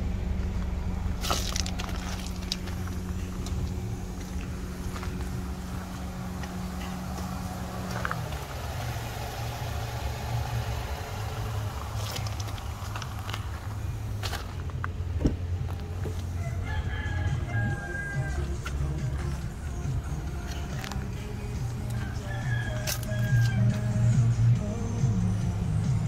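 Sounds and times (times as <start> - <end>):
car engine idling: 0.0 - 26.0
footsteps on gravel: 1.1 - 9.1, 11.8 - 16.4, 17.5 - 23.9.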